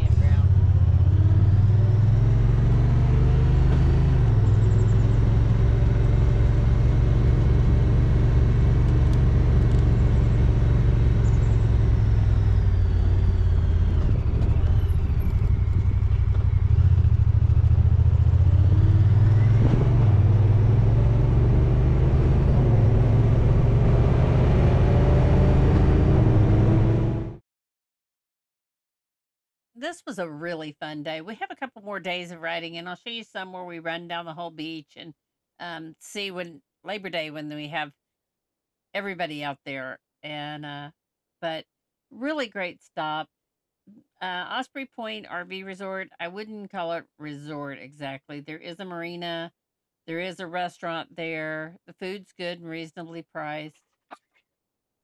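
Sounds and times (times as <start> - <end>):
utility vehicle engine droning: 0.0 - 27.4.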